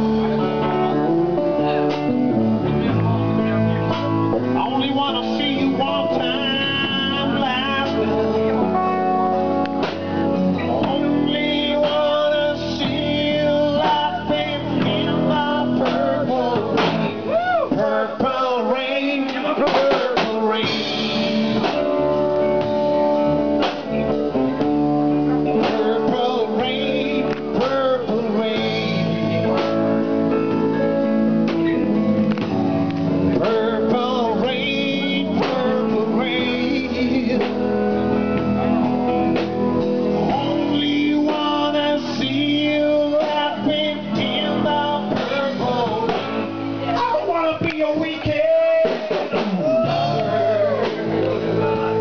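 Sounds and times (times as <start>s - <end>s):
drum kit: 0.0s - 52.0s
electric guitar: 0.0s - 52.0s
person singing with vibrato: 2.6s - 9.2s, 10.4s - 21.8s, 25.4s - 30.0s, 33.2s - 38.2s, 40.0s - 52.0s.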